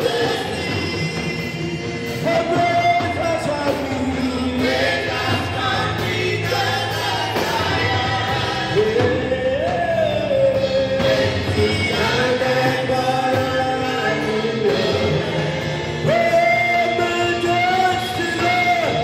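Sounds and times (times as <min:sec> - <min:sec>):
live band accompaniment: 0:00.0 - 0:19.0
man singing into a microphone: 0:00.0 - 0:19.0.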